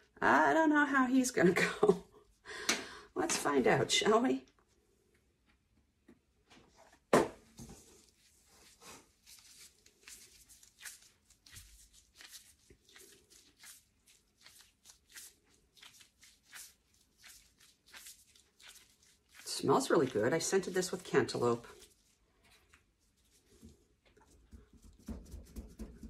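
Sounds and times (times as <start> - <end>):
plastic gloves crinkling and rustling: 7.5 - 24.9.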